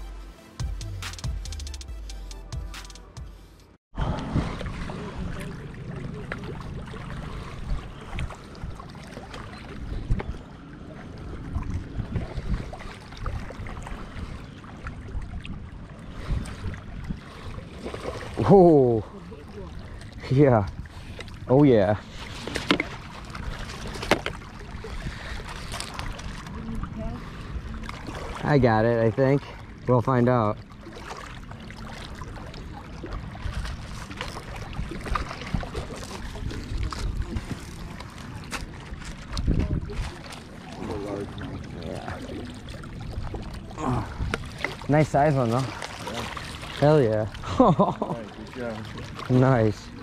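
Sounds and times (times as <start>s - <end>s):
water splashing and sloshing: 2.6s - 50.0s
wind rumbling on microphone: 9.7s - 18.5s, 32.9s - 45.2s.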